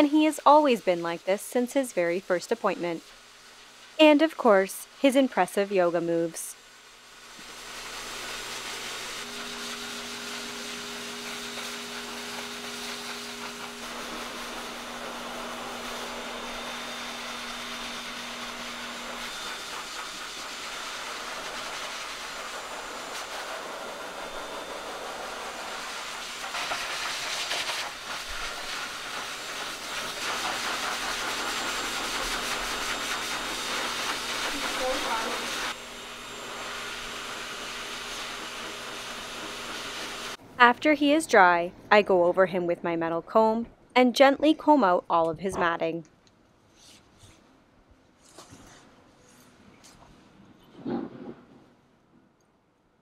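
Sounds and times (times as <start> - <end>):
pet dryer blowing air: 0.0 - 40.4.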